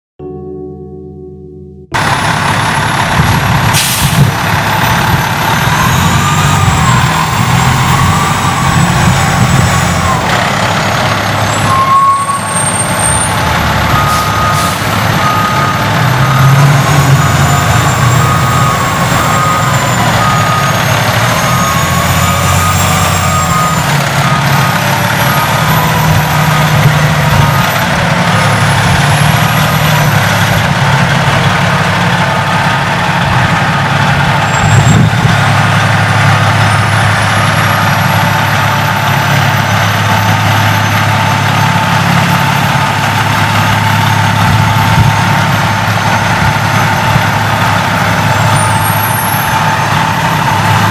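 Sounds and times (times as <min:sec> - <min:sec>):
diesel truck engine accelerating: 0:01.9 - 0:50.9
air brake hiss: 0:03.8 - 0:04.3
high beep: 0:11.7 - 0:13.2, 0:13.9 - 0:26.7.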